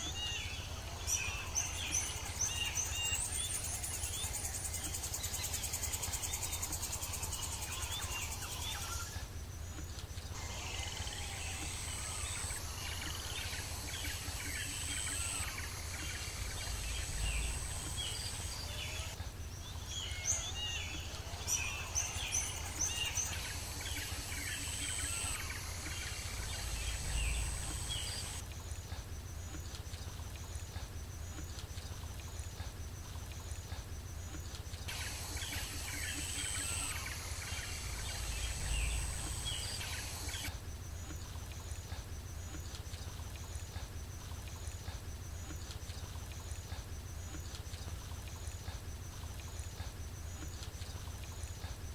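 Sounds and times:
birds chirping and calling: 0.0s - 28.5s, 34.9s - 40.5s
low steady hum: 0.0s - 51.9s.

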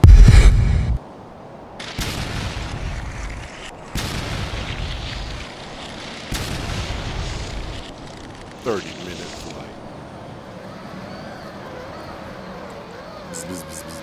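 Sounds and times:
deep booms with rumble: 0.0s - 1.0s.

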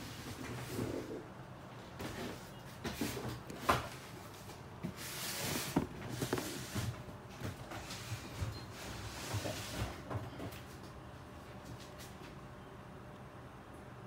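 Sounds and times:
cardboard box rustling: 5.0s - 7.0s.

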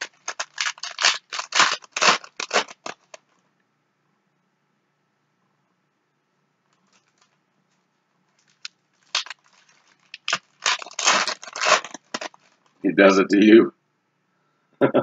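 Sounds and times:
foil wrapper crinkling: 0.0s - 3.2s, 6.8s - 7.4s, 8.4s - 12.8s.

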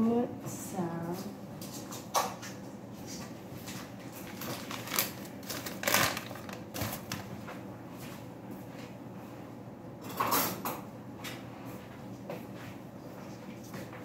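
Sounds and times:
paper packet rustling: 3.6s - 7.6s.

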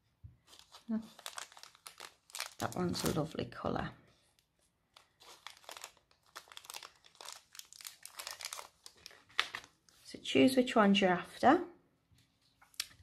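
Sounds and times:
plastic bag crinkling: 0.5s - 3.6s, 4.4s - 10.0s.

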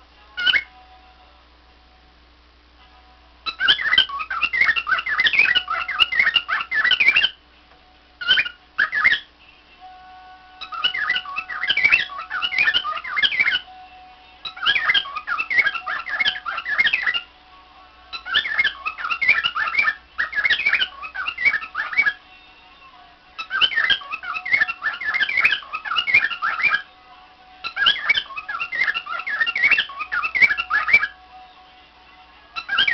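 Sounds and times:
cockatiel chirping and warbling: 0.4s - 0.7s, 3.5s - 7.4s, 8.2s - 9.3s, 10.6s - 13.7s, 14.4s - 17.3s, 18.1s - 22.2s, 23.4s - 26.9s, 27.6s - 31.2s, 32.6s - 32.9s.

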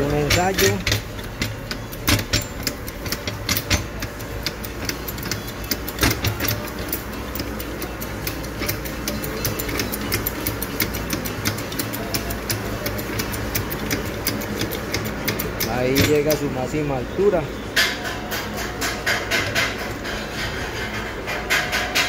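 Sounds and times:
floor jack pumping clicks: 0.0s - 16.7s.

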